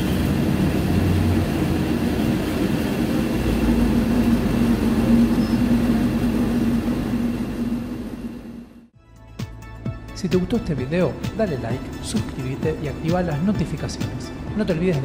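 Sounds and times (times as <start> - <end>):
road rumble: 0.0 - 8.9
bus diesel engine drone: 0.0 - 9.0.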